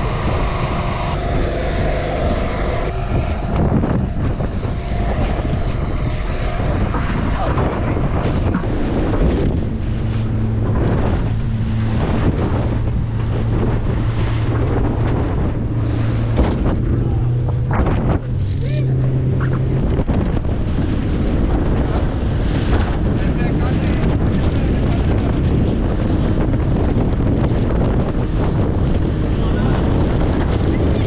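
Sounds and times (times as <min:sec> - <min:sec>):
low boat engine hum: 0:00.0 - 0:31.0
water rushing and splashing: 0:00.0 - 0:31.0
wind buffeting microphone: 0:00.0 - 0:31.0.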